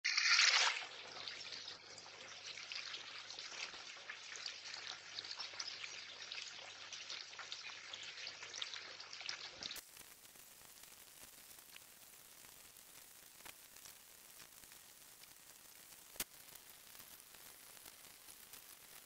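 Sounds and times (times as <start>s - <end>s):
water trickling into pond: 0.1s - 10.3s.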